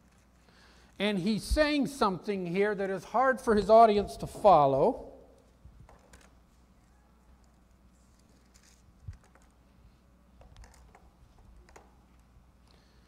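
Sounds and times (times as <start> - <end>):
pages being turned: 8.0 - 9.6.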